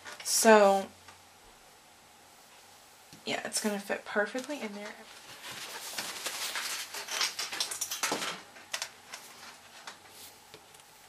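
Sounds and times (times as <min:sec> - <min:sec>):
paper rustling: 0:04.4 - 0:10.8.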